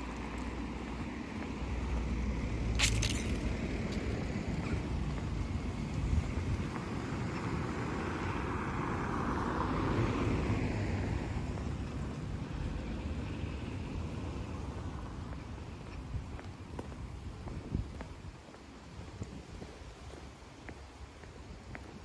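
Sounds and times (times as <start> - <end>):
steady low rumble: 0.0 - 8.4
cars passing on brick street: 0.0 - 22.0.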